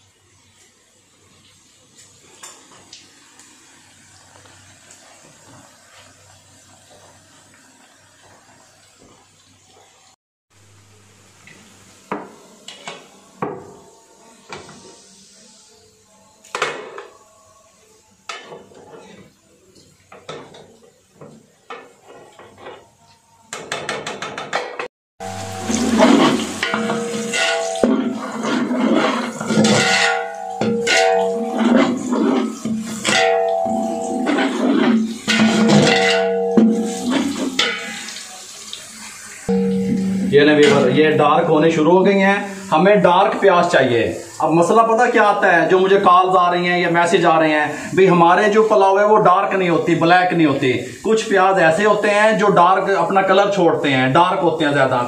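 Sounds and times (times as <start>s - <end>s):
onions sizzling in pot: 0.0s - 23.0s, 25.2s - 55.0s
spoon clinking against pot: 25.6s - 38.1s.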